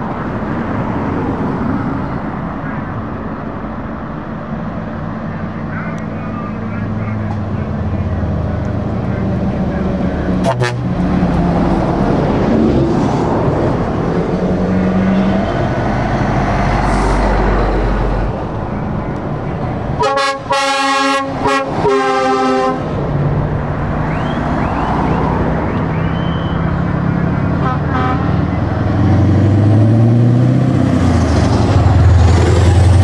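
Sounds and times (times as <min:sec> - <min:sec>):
trucks driving past: 0:00.0 - 0:33.0
truck multi-tone horn blasts: 0:10.4 - 0:11.0, 0:20.0 - 0:23.0, 0:24.1 - 0:26.7, 0:27.5 - 0:28.6.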